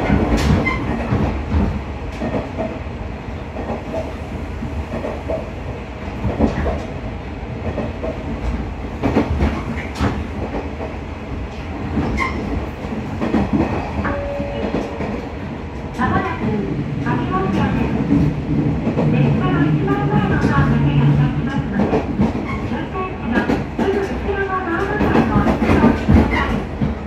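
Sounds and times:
train engine and wheels rumbling: 0:00.0 - 0:27.0.

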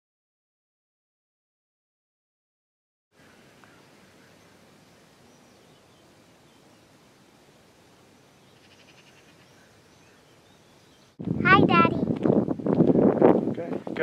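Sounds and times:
faint outdoor hiss: 0:03.2 - 0:14.0.

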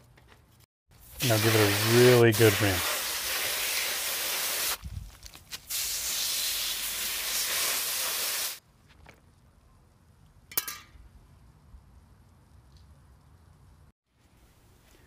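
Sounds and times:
hose spray nozzle hissing: 0:01.1 - 0:04.8, 0:05.7 - 0:08.6.

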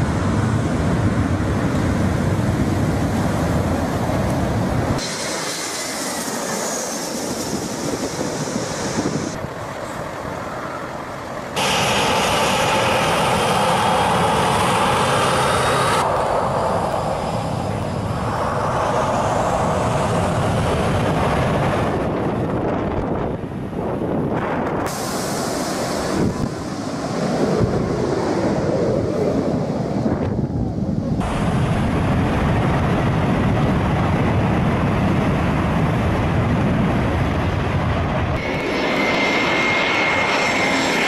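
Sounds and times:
jet airliner engines whining: 0:00.0 - 0:41.0
rush of jet blast: 0:05.0 - 0:09.4, 0:11.6 - 0:22.2, 0:24.4 - 0:28.7.

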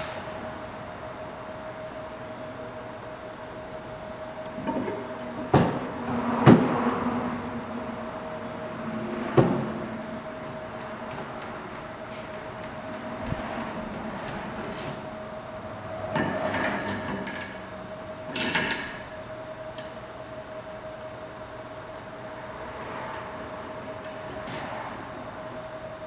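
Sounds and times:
steady hum: 0:00.0 - 0:26.0
metal clanks: 0:16.1 - 0:17.7.

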